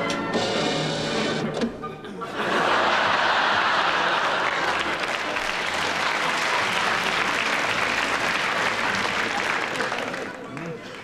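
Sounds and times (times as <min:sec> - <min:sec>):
audience laughing: 0:02.1 - 0:10.4
audience applauding: 0:02.6 - 0:11.0.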